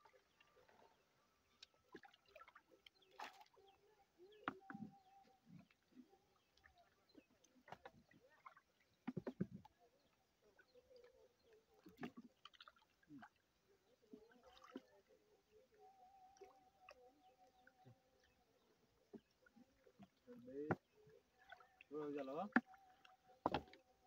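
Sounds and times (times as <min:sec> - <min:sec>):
faint steady tone: 0:00.0 - 0:24.0
knocks in wooden boat: 0:23.4 - 0:23.8.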